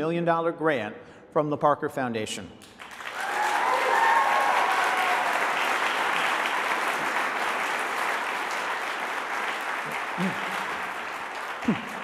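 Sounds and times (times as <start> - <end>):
large audience applauding: 2.7 - 12.0
faint cheers: 3.1 - 5.7.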